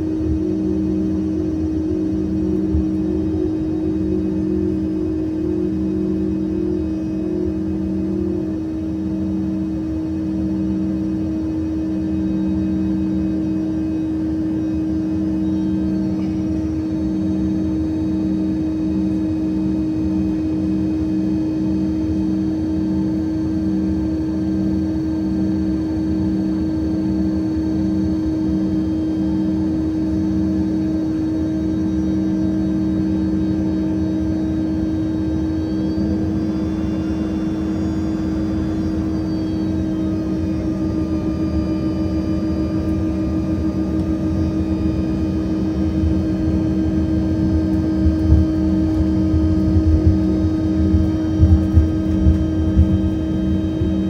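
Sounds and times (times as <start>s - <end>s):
jet turbine whine and hum: 0.0s - 54.0s
pulsing low tone: 0.0s - 54.0s.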